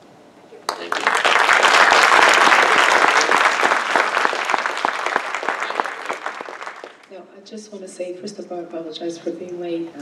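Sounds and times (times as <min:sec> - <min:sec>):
people applauding: 0:00.7 - 0:07.1.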